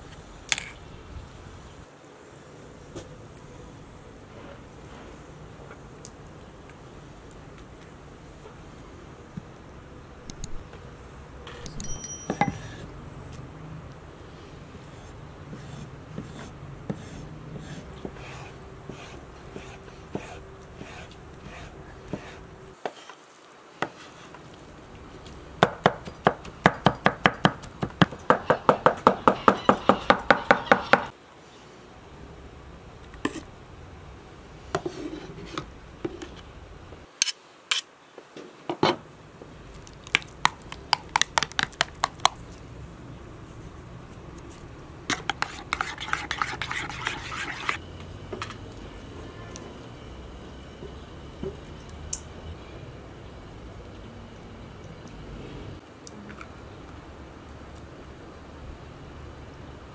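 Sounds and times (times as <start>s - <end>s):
spoon stirring: 40.1s - 42.4s, 45.1s - 47.8s.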